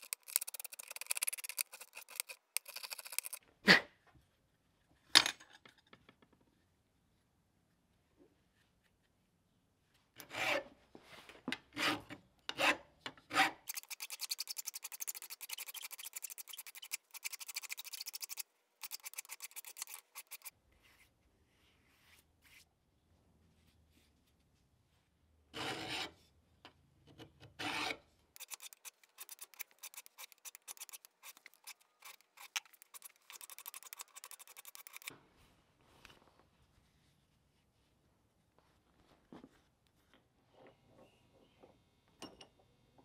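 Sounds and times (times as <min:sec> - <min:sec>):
hand file rasping on metal: 0:11.8 - 0:20.5, 0:27.7 - 0:35.1.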